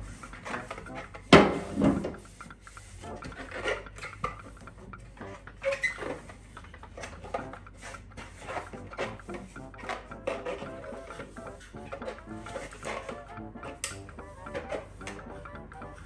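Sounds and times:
plastic shelf knocking: 0:01.3 - 0:02.2.

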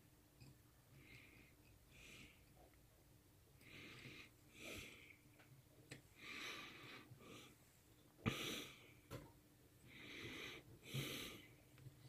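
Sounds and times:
heavy breathing through nose: 0:03.6 - 0:05.2, 0:06.1 - 0:07.6, 0:09.9 - 0:11.7.

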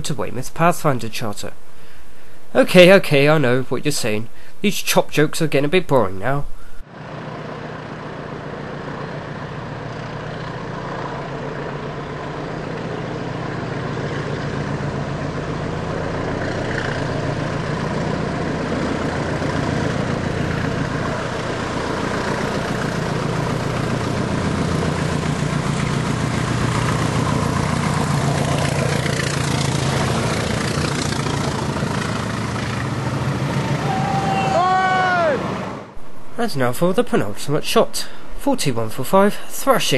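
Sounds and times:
diesel locomotives working hard: 0:06.6 - 0:36.0
train coaches passing: 0:19.7 - 0:35.9.

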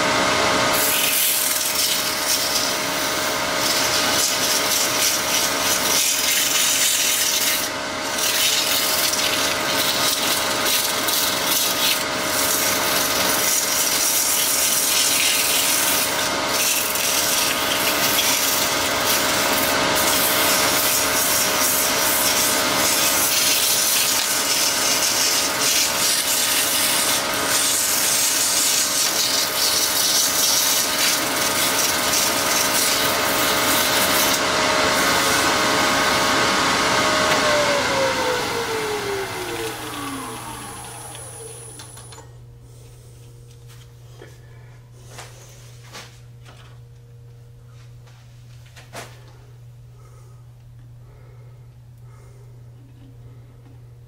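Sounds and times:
lathe whine: 0:00.0 - 0:42.3
lathe tool scraping resin: 0:00.6 - 0:42.2.

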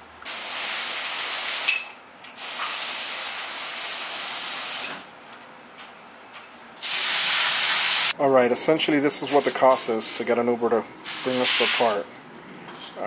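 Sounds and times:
hissing spray bursts: 0:00.2 - 0:05.0, 0:06.8 - 0:08.2, 0:09.0 - 0:10.3, 0:11.0 - 0:12.0.

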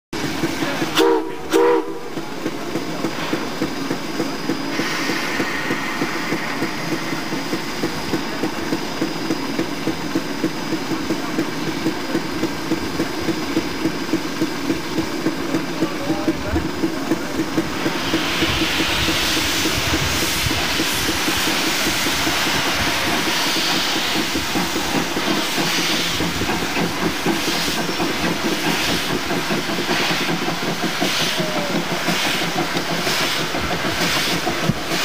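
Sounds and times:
steam hissing: 0:00.2 - 0:35.0
steam locomotive chuffing: 0:00.2 - 0:35.0
steam locomotive whistle blasts: 0:00.9 - 0:02.1.

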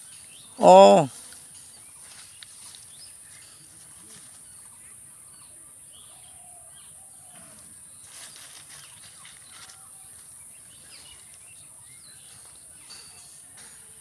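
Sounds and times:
faint bird chirps: 0:01.5 - 0:13.7
brief rustle: 0:07.5 - 0:09.9.

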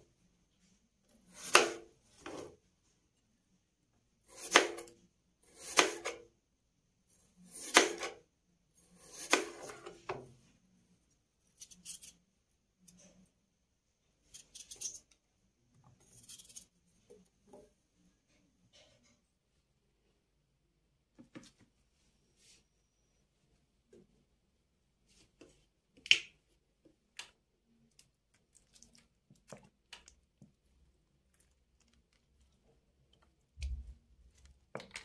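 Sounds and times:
knife slicing potatoes on board: 0:01.3 - 0:02.5, 0:04.3 - 0:06.3, 0:07.5 - 0:08.2, 0:08.9 - 0:10.0.

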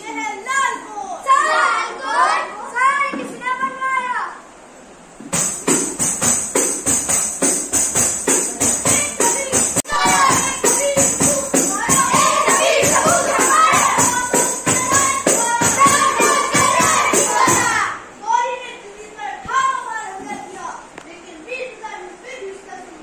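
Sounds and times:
jingling hand percussion: 0:05.3 - 0:17.9
children singing together: 0:08.8 - 0:18.2.

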